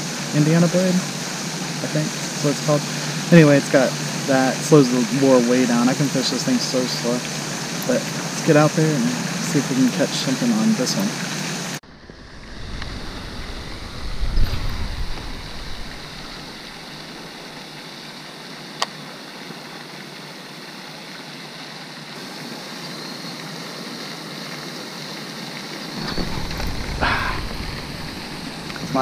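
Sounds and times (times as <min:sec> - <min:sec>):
fountain water rushing: 0:00.0 - 0:29.0
wind buffeting microphone: 0:11.9 - 0:17.6, 0:25.9 - 0:29.0.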